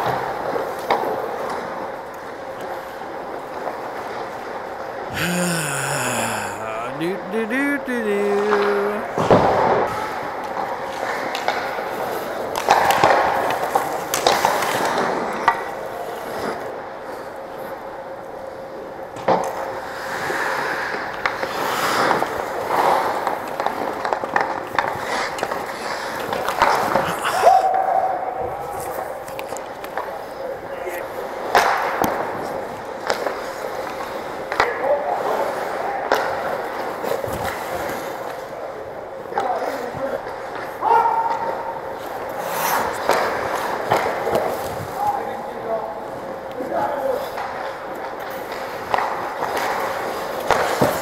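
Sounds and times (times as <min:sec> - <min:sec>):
person shouting: 0:05.1 - 0:09.1, 0:27.1 - 0:27.6.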